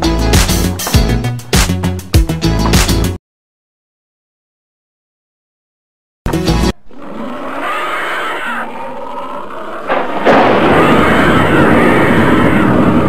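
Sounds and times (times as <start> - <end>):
dense rumbling noise: 9.8 - 13.0
sudden loud hit: 9.9 - 12.7.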